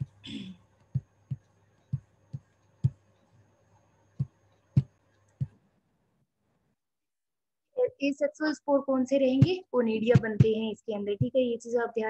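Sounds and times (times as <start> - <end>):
faint electrical hum: 0.0 - 6.8.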